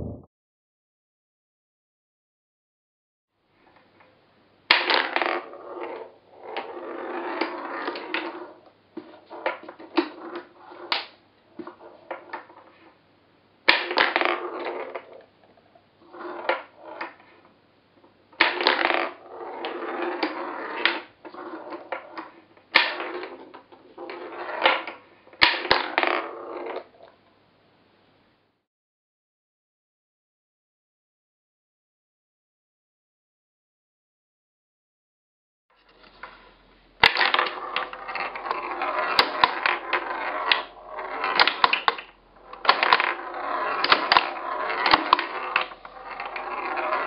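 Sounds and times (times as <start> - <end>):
pinballs rolling on wooden lanes: 4.7 - 12.6, 13.7 - 15.3, 16.0 - 17.4, 18.4 - 27.0, 35.9 - 47.0
pinballs clacking: 37.0 - 47.0.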